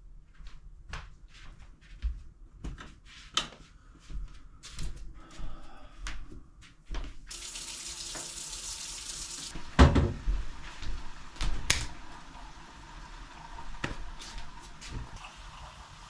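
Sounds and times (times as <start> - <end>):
sink tap running: 7.3 - 16.0.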